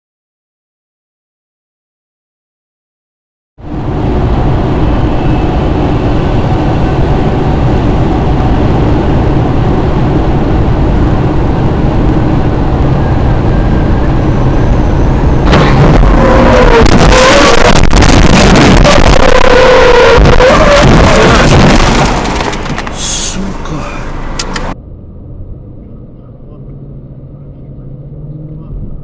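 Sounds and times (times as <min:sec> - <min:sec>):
car road and engine noise: 0:03.6 - 0:29.0
debris hitting windshield: 0:21.0 - 0:23.3.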